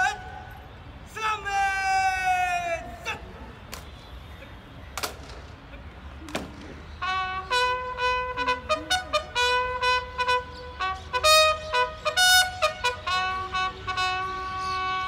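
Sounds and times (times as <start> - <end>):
bugle call: 0.0 - 0.8, 7.0 - 15.0.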